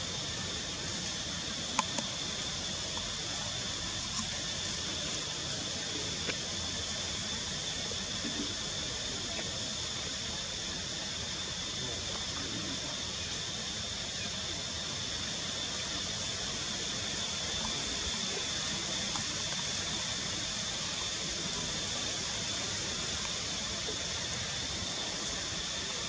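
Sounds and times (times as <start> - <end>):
steady high whine: 0.0 - 26.0
steady hiss: 0.0 - 26.0.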